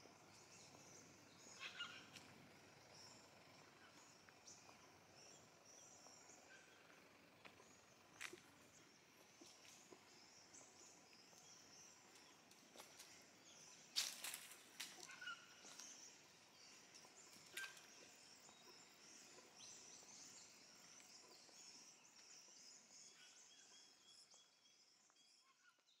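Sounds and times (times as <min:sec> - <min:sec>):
distant birds calling: 0:00.0 - 0:20.3.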